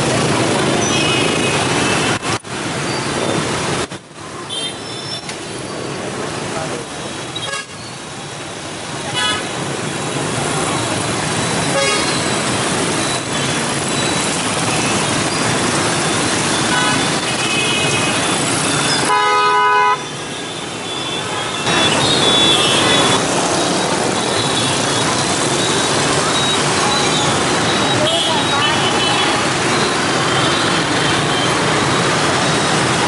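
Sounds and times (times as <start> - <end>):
motorbike and scooter traffic: 0.0 - 33.0
loud horn blast: 19.1 - 20.0.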